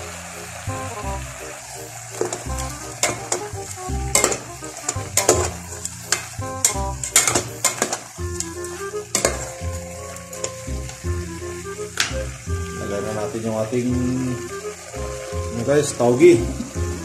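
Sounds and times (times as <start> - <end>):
background music: 0.0 - 17.0
food sizzling: 0.0 - 17.0
metal spoon scraping a pot: 4.1 - 8.0, 8.6 - 9.6.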